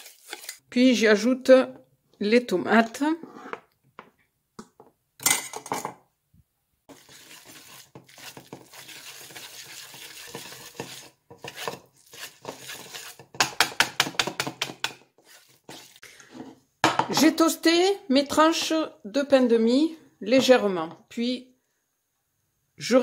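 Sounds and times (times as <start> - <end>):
whisk scraping a metal bowl: 0.0 - 0.6, 6.9 - 16.5.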